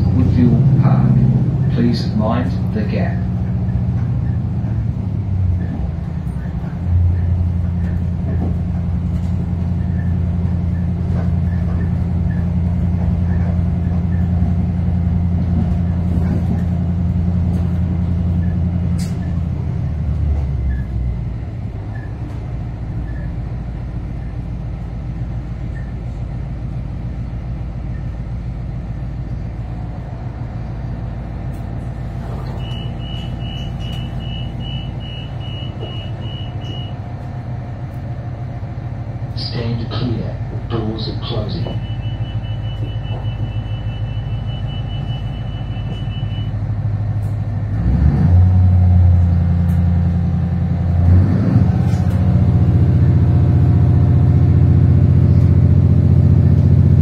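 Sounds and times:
railcar diesel engine droning: 0.0 - 57.0
train rolling noise: 0.0 - 57.0
short high beeps: 32.5 - 37.0, 41.6 - 46.5.

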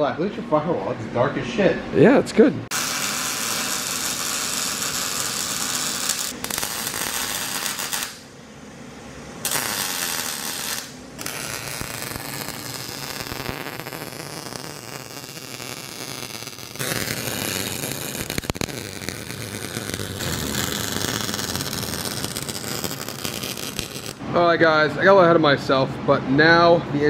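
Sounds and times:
arc welding crackling hiss: 2.7 - 8.4, 9.4 - 24.2.

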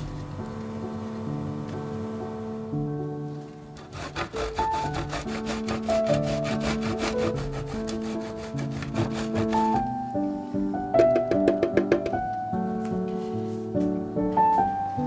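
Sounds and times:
cheese grating on metal grater: 3.8 - 9.9.

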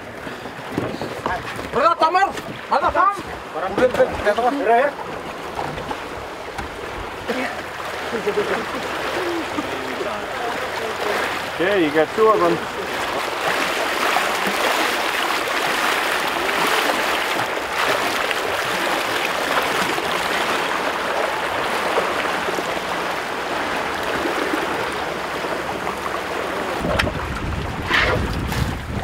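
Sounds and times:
water rushing: 0.0 - 29.0
wind rumble on microphone: 26.6 - 29.0.

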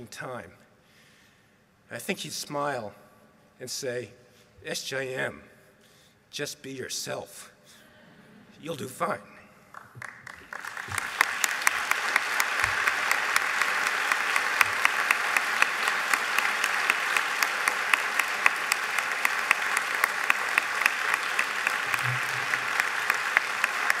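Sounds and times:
audience applauding: 9.8 - 24.0.

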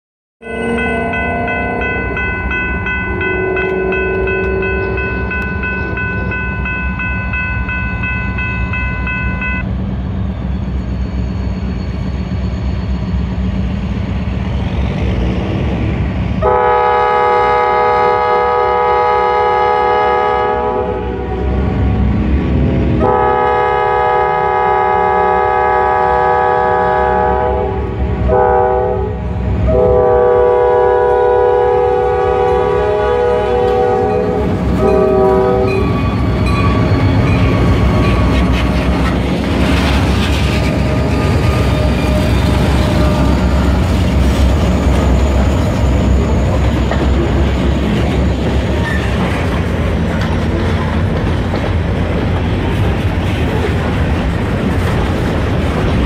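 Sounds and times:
crossing signal bell ringing: 0.4 - 9.7, 32.0 - 39.5, 40.6 - 48.5
locomotive air horn blasts: 3.2 - 6.1, 16.4 - 22.1, 23.0 - 35.9.

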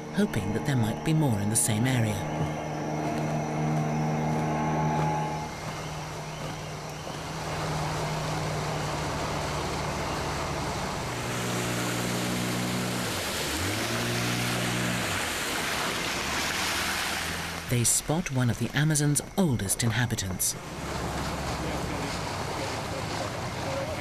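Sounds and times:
boat motor running: 0.0 - 18.8, 19.9 - 24.0
water rushing past: 0.0 - 24.0.

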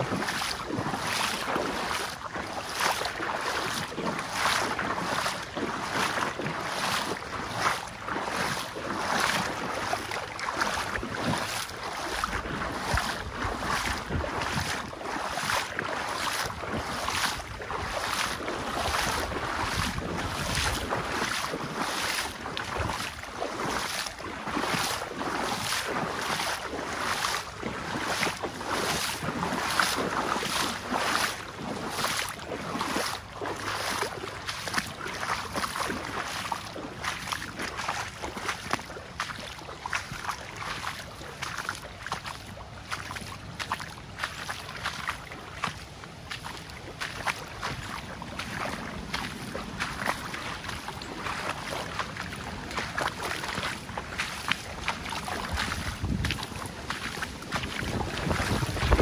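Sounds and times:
footsteps: 0.0 - 59.0
river water rushing: 0.0 - 59.0
wind gusting on microphone: 55.4 - 56.6, 57.6 - 59.0.

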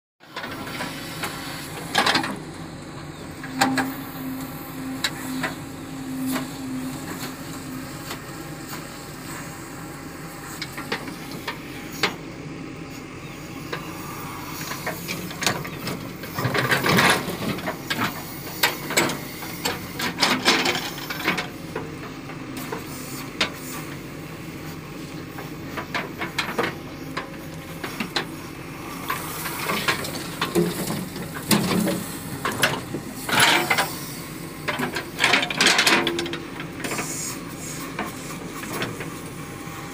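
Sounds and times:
diesel engine running under load: 0.2 - 39.9
short steady whine: 0.3 - 9.8.

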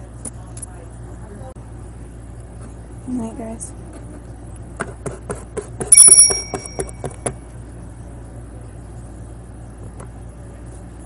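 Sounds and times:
ringing ding: 5.9 - 7.3.

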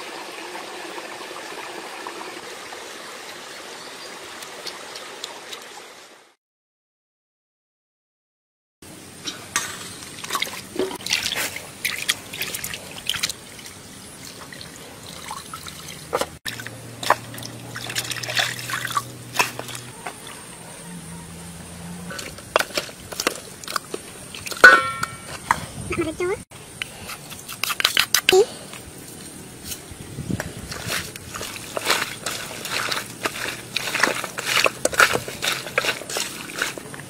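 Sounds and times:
water trickling and dripping: 0.0 - 6.3, 10.0 - 19.9
wet splashes of handled meat: 15.1 - 19.9.

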